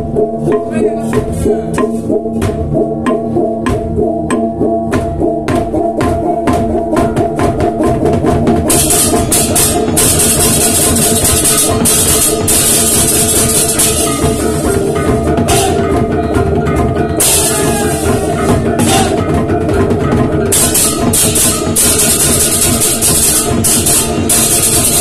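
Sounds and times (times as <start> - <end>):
drums: 0.0 - 25.0
gongs ringing: 8.6 - 25.0
hand cymbals clashing: 8.7 - 16.0, 17.1 - 19.4, 20.6 - 25.0.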